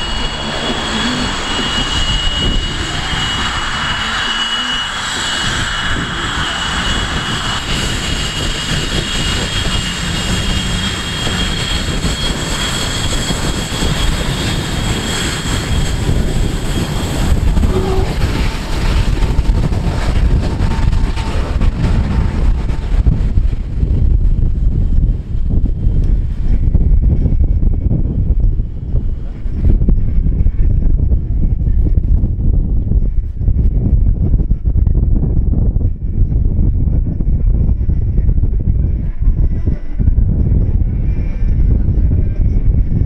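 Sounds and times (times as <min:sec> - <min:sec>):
jet engine low rumble: 0:00.0 - 0:43.0
jet engine whine: 0:00.0 - 0:43.0.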